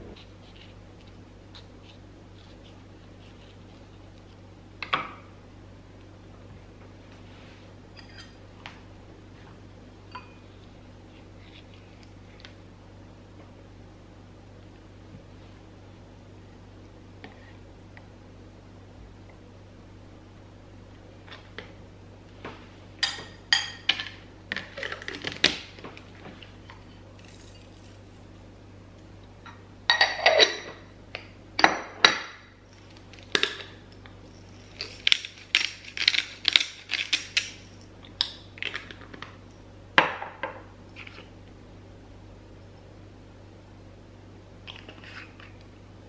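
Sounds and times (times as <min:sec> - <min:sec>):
spoon clinking against glass bowl: 0:10.1 - 0:10.4.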